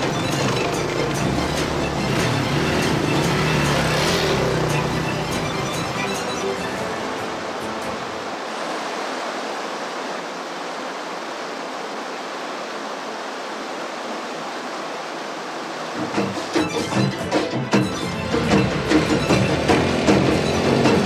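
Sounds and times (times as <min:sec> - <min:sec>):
music with drums: 0:00.0 - 0:06.2, 0:16.0 - 0:21.0
waterfall rushing over rocks: 0:00.0 - 0:21.0.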